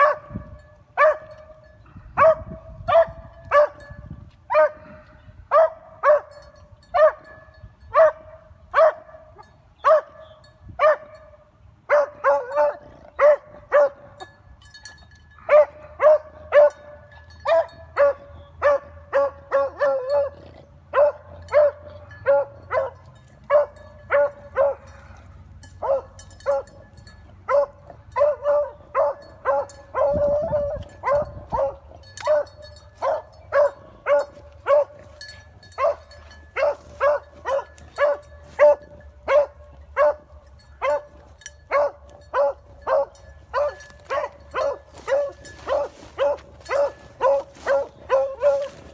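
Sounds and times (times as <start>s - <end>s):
dog barking: 0.0s - 0.3s, 1.0s - 1.4s, 2.2s - 3.8s, 4.5s - 4.9s, 5.5s - 6.4s, 7.0s - 7.3s, 8.0s - 9.2s, 9.8s - 10.2s, 10.8s - 11.2s, 11.9s - 14.1s, 15.5s - 16.9s, 17.5s - 25.0s, 25.8s - 26.7s, 27.5s - 35.0s, 35.8s - 41.1s, 41.7s - 48.8s.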